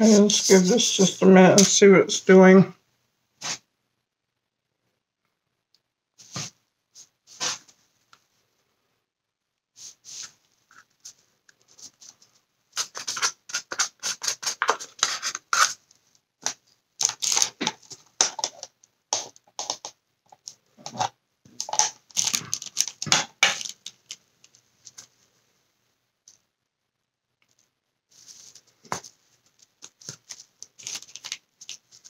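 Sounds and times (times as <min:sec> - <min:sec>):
art supplies scratching and clicking: 0:10.2 - 0:25.1, 0:27.4 - 0:32.0.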